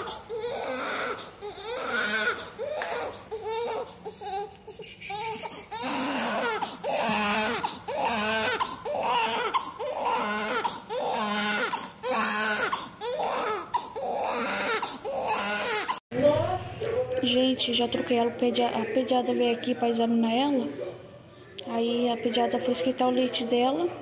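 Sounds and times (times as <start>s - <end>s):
baby crying: 0.0s - 16.0s.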